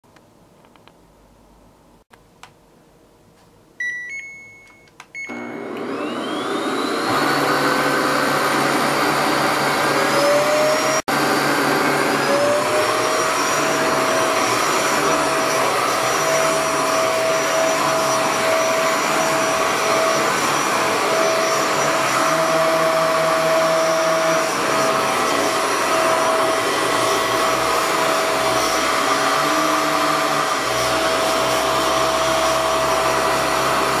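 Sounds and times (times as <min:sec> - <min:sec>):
short beeps: 0:03.8 - 0:05.5
vacuum cleaner motor whine: 0:05.2 - 0:34.0.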